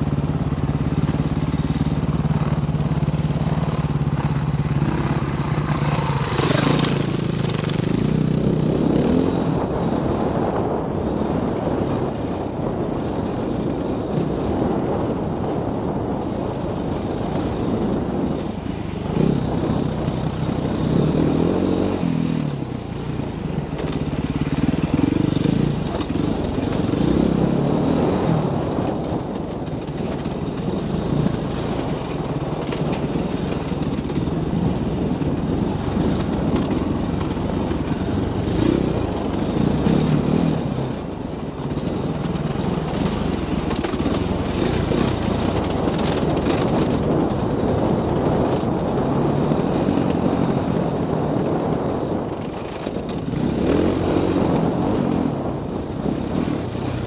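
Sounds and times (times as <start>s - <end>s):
dirt bike engine revving: 0.0s - 10.1s, 37.6s - 41.1s, 53.2s - 55.4s.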